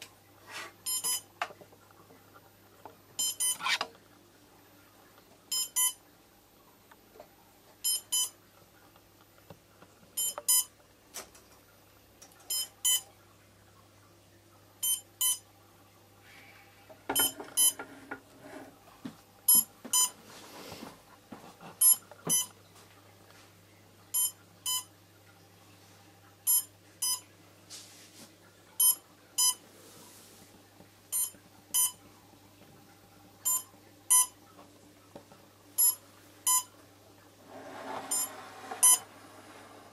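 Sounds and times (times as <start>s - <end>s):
faint steady hum: 0.0s - 39.9s
short electronic beeps: 0.9s - 1.2s, 3.2s - 3.6s, 7.9s - 8.3s, 10.2s - 10.7s, 19.5s - 20.1s, 21.8s - 22.5s, 24.2s - 24.9s, 26.5s - 27.2s, 28.8s - 29.6s, 31.1s - 32.0s, 33.5s - 34.3s, 35.8s - 36.7s, 38.1s - 39.0s.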